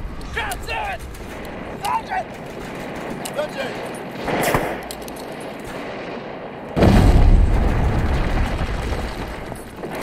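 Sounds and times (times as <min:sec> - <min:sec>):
gunshots: 0:00.9 - 0:10.0
big explosion with deep rumble: 0:06.8 - 0:10.0.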